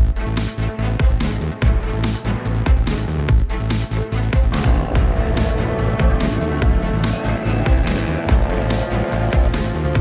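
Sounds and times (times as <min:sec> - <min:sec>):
electronic dance music: 0:04.5 - 0:10.0.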